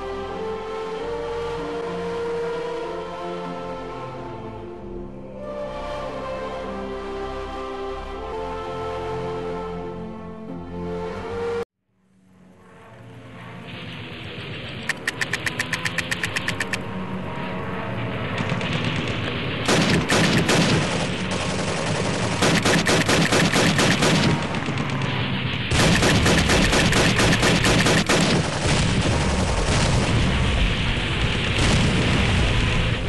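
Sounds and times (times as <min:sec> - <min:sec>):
paintball markers firing bursts: 0:14.9 - 0:16.8, 0:19.7 - 0:24.6, 0:25.7 - 0:28.7
background shooting: 0:18.4 - 0:30.5.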